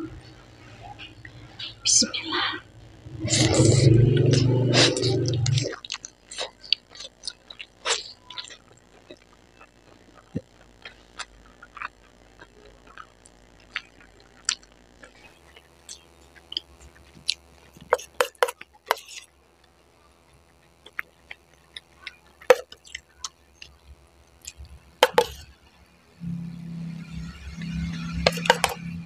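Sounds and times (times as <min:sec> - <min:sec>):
wet chewing: 0:04.2 - 0:25.5.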